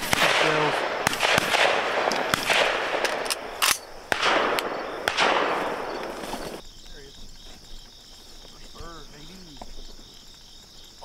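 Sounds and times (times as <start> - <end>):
shotgun shots with echo: 0.0 - 6.6.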